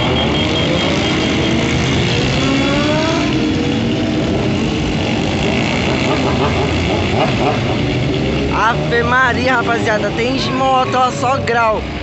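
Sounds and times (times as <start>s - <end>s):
motorcycle engines revving: 0.0s - 12.0s
motorcycles riding past: 0.0s - 12.0s.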